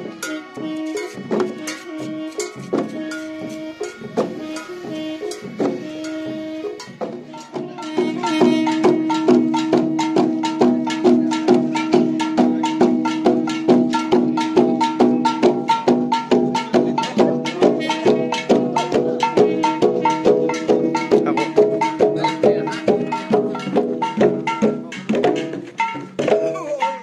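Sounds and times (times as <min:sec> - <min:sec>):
horn holding a steady note: 0:00.0 - 0:10.5
drums beaten in fast rhythm: 0:00.0 - 0:27.0.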